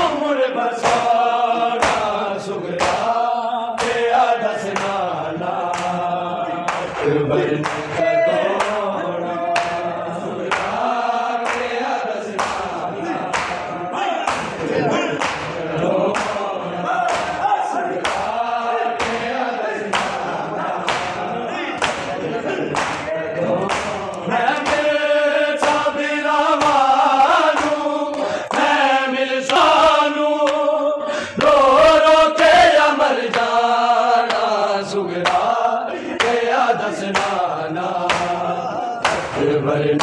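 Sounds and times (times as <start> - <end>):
crowd of men chanting in unison: 0.0 - 40.0
chest-beating slaps: 0.8 - 2.2, 2.8 - 3.2, 3.8 - 8.0, 9.6 - 9.9, 10.5 - 10.8, 11.4 - 11.8, 12.4 - 25.9, 26.6 - 28.7, 35.2 - 35.5, 37.1 - 37.4, 38.0 - 39.5.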